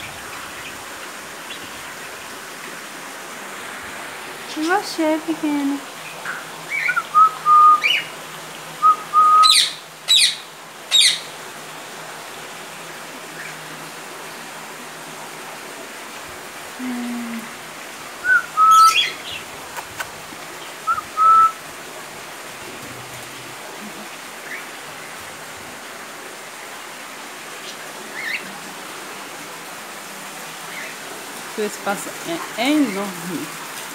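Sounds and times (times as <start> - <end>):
parrots whistling: 8.8 - 11.2, 18.2 - 19.2, 20.9 - 21.6
parrots screeching: 9.2 - 11.3, 18.3 - 19.2.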